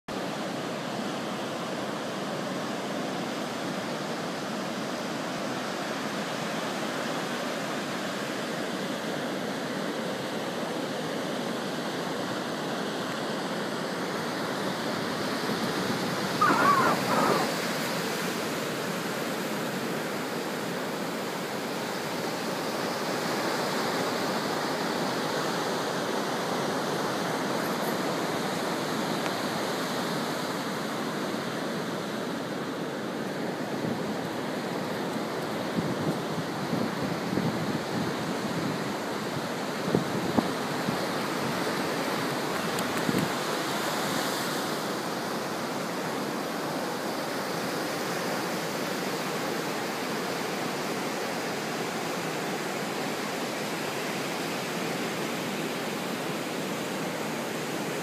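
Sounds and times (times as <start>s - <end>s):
ocean surf breaking on beach: 0.1s - 58.0s
brief high call: 16.4s - 17.6s.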